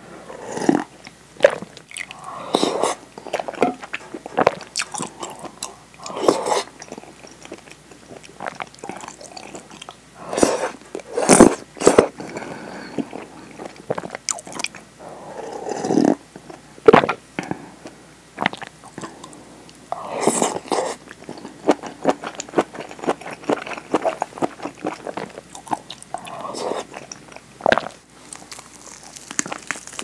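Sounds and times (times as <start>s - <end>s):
slurping soup from a bowl: 0.2s - 6.8s, 10.2s - 12.2s, 20.0s - 21.0s, 26.2s - 27.1s
chewing and swallowing: 0.3s - 10.0s, 10.6s - 30.0s.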